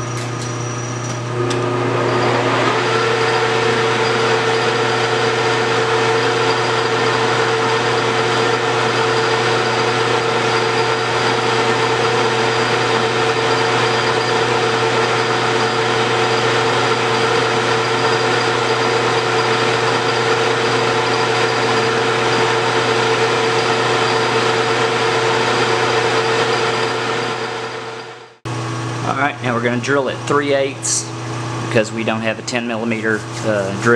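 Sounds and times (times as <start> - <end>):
metal lathe hum and whine: 0.0 - 33.9.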